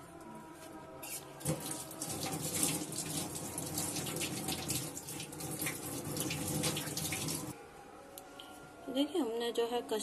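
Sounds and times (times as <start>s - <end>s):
running water splashing: 1.4s - 7.5s.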